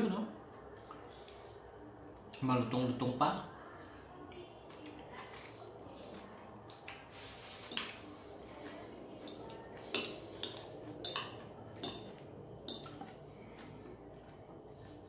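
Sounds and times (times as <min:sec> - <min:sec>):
cutlery clinking and scraping on plate: 0:07.5 - 0:08.1, 0:09.2 - 0:13.2.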